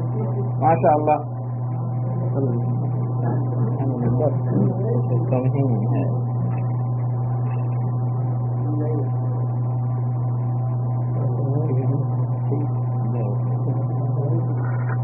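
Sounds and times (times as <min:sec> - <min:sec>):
steady low hum: 0:00.0 - 0:15.0
faint voices murmuring: 0:01.9 - 0:06.8.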